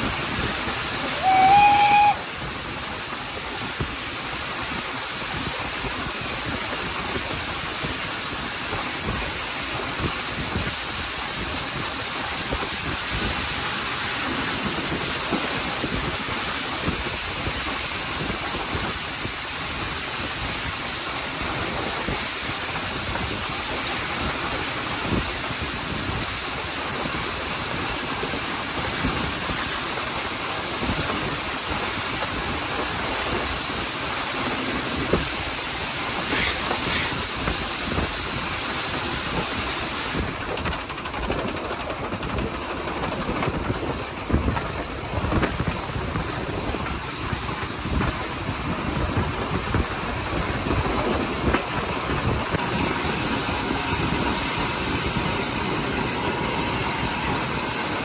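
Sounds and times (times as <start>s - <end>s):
rush of steam: 0.0s - 58.0s
train running gear: 0.0s - 58.0s
wind: 0.0s - 58.0s
steam whistle blast: 0.8s - 2.7s, 36.2s - 37.3s.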